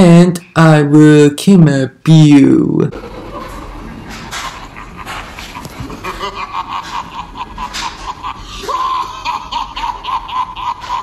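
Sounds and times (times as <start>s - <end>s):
high-pitched cackling laugh: 3.0s - 11.0s.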